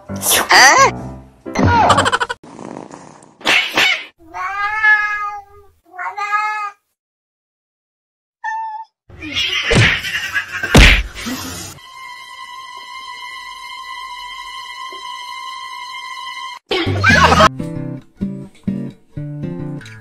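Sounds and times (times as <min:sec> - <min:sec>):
cats meowing: 0:04.3 - 0:06.8, 0:08.4 - 0:10.7
cats fighting: 0:09.2 - 0:11.3.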